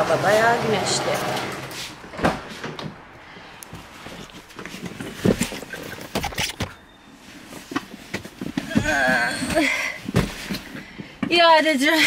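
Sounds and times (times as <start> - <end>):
knocks bumps and rustling: 3.8 - 6.8, 7.5 - 11.4.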